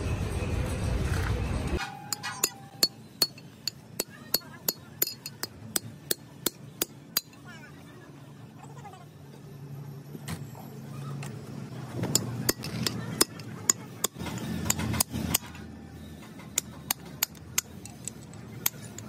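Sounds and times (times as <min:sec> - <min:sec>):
metal tool clinking on wheel hub: 0:01.8 - 0:07.5, 0:12.0 - 0:19.0.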